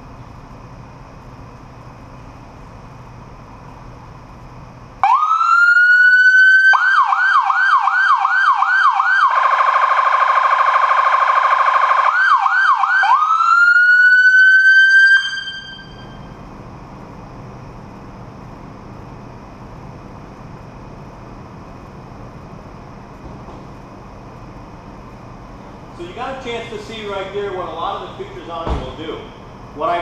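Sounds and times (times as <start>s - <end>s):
police siren wailing and yelping: 5.0s - 16.2s.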